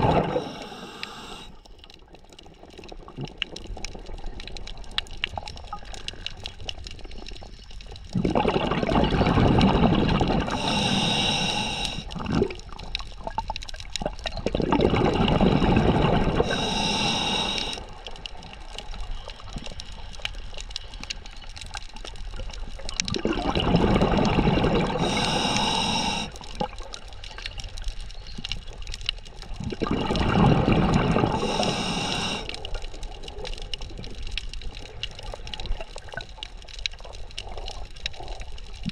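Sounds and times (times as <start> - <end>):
exhaled bubbles from regulator: 0.0 - 1.6, 8.1 - 17.9, 23.0 - 26.9, 29.5 - 32.8
faint underwater noise: 0.0 - 38.9
high hiss: 0.4 - 1.6, 10.6 - 12.1, 16.4 - 17.8, 25.0 - 26.4, 31.4 - 32.6.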